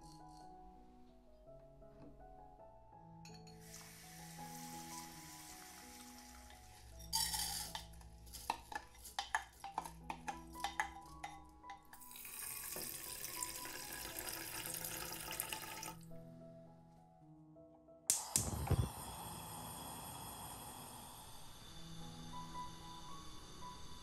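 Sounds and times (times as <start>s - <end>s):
soft background music: 0.0s - 24.0s
water pouring onto rice: 3.7s - 7.7s, 12.1s - 16.0s
rice clinking into a pot: 5.7s - 11.4s.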